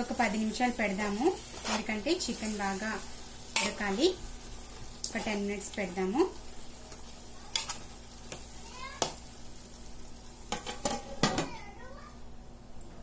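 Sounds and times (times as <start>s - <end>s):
chicken frying: 0.0s - 12.2s
spoon scraping metal pot: 1.5s - 2.0s.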